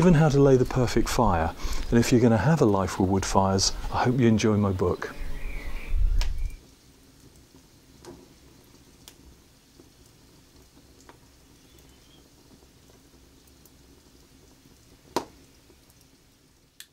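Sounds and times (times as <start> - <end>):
low background hiss: 0.0 - 16.9
wood fire crackling: 0.0 - 16.9.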